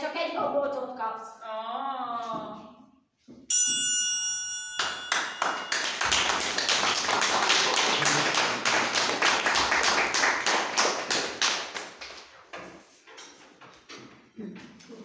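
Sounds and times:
audience clapping: 0:04.8 - 0:12.4.

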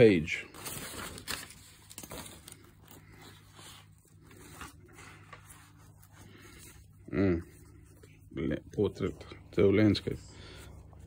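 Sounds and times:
steady low hum: 0:00.0 - 0:11.0
paper rustling and scraping: 0:00.5 - 0:08.1.

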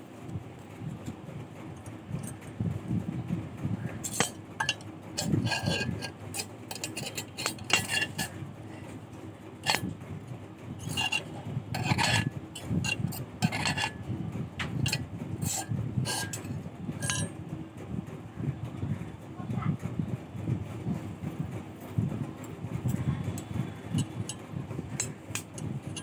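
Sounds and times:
metal wire clicking and scraping: 0:00.9 - 0:02.6, 0:03.8 - 0:17.4, 0:22.4 - 0:26.0.

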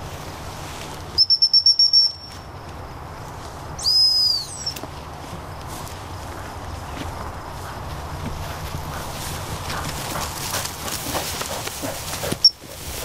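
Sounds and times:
dog-training whistle: 0:01.2 - 0:02.3, 0:03.8 - 0:04.8.

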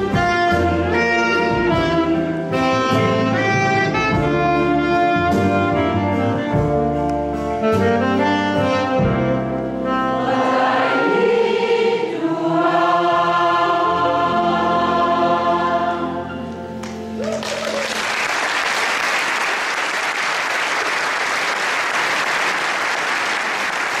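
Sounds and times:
choir with instruments: 0:00.0 - 0:05.8, 0:08.9 - 0:17.3
audience applause: 0:17.2 - 0:24.0.

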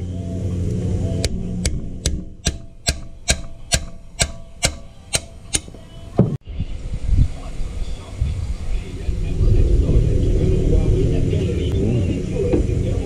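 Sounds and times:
low handling noise: 0:00.0 - 0:13.0
steel bar tapping metal: 0:01.2 - 0:05.8.

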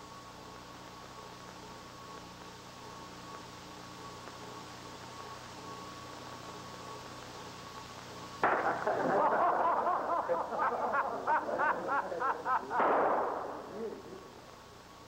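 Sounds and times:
burst of noise: 0:08.4 - 0:09.2, 0:12.7 - 0:14.5.

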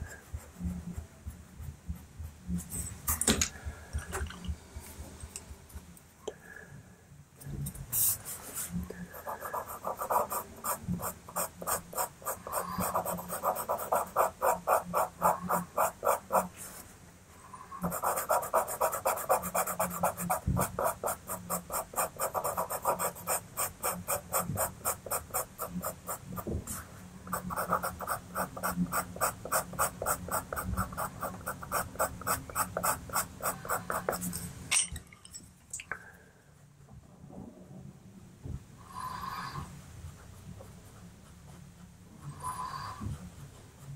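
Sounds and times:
pencil scratching on paper: 0:07.9 - 0:16.9, 0:17.8 - 0:34.4, 0:40.0 - 0:43.9.

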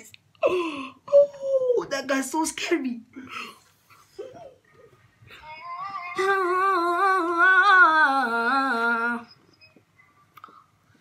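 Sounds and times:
boy singing: 0:05.3 - 0:09.3.

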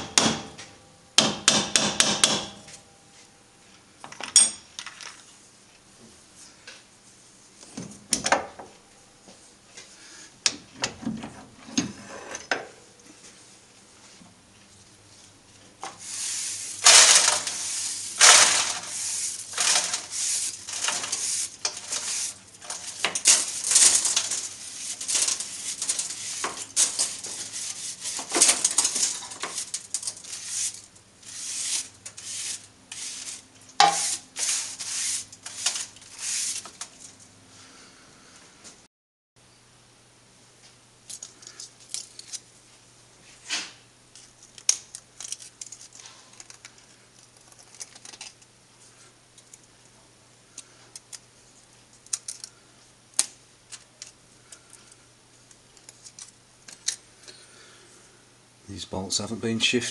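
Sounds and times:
scratchy scraping of metal swarf: 0:16.0 - 0:36.8
metal chips clinking: 0:16.0 - 0:37.1.

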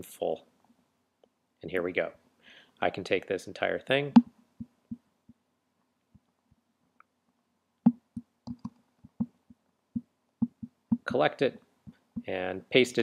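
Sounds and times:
computer mouse clicking: 0:08.1 - 0:09.3.

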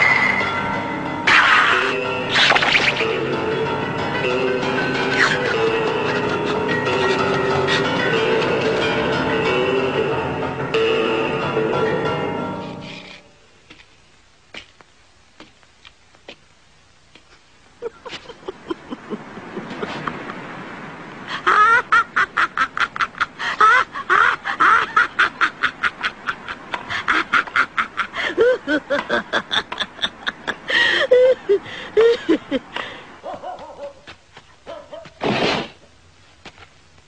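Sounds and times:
man panting and yelping: 0:05.2 - 0:08.1.

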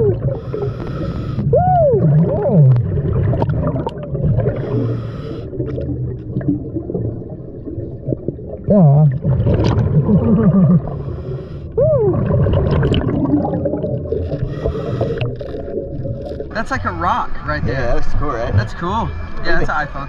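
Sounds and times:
low underwater rumble: 0:00.0 - 0:19.8
hissing regulator breaths: 0:00.3 - 0:01.5, 0:04.5 - 0:05.7, 0:10.9 - 0:11.8, 0:14.3 - 0:15.6
muffled voice hooting underwater: 0:01.5 - 0:03.0, 0:08.6 - 0:09.3, 0:11.8 - 0:12.6.

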